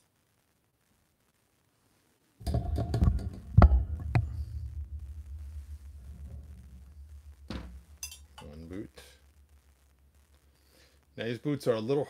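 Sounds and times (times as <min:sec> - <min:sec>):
steady low hum: 0:02.4 - 0:11.8.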